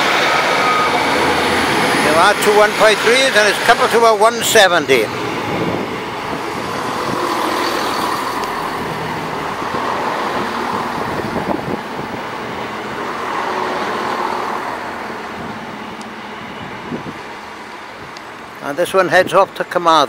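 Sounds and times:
diesel train engine: 0.0s - 19.1s
wheels on rails: 4.4s - 13.4s.

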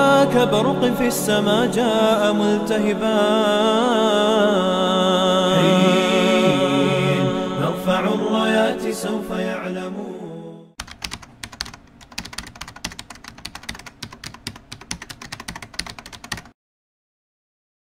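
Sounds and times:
sung vocal music: 0.0s - 10.8s
keyboard typing clicks: 10.8s - 16.5s.

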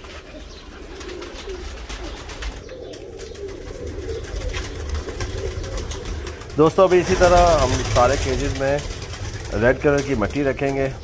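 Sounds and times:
pigeons cooing: 0.0s - 11.0s
steady low rumble: 3.6s - 11.0s.

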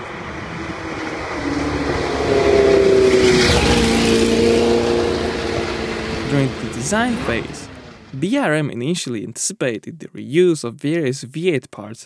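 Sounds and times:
racing engine at high revs: 0.0s - 8.1s.

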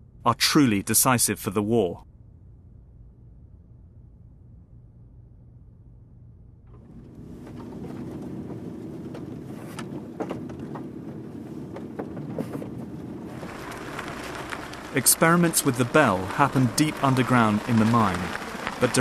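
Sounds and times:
faint low hum: 0.0s - 19.0s
car driving on dirt track: 6.7s - 19.0s
clicks and knocks from bumping: 6.8s - 14.8s.

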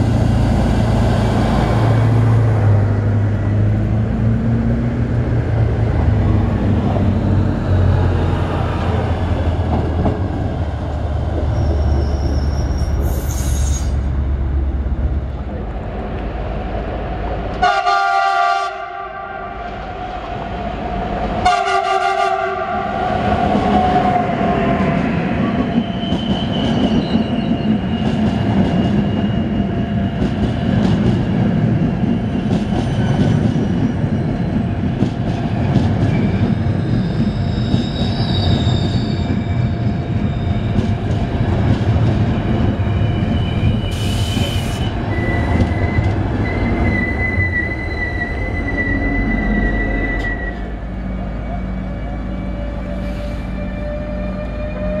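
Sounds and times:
train rumble: 0.0s - 55.0s
high wheel squeals: 11.4s - 14.1s, 36.0s - 40.8s, 43.0s - 55.0s
train horn blasts: 17.6s - 19.6s, 21.4s - 22.9s, 52.7s - 55.0s.

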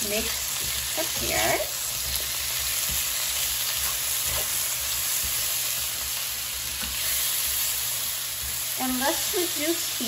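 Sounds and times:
pears sizzling in hot oil: 0.0s - 10.0s
spatula scraping a pan: 0.2s - 9.0s.

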